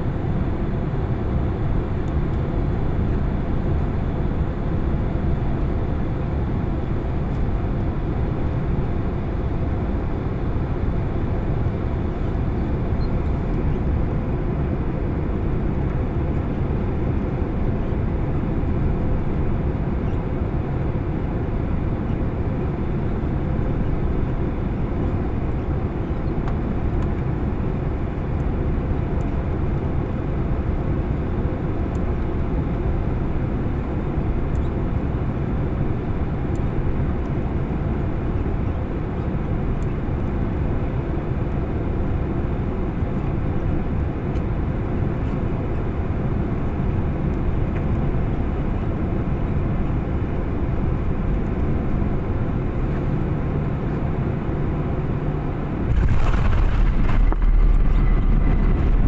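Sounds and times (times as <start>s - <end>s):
airplane cabin engine roar: 0.0s - 59.0s.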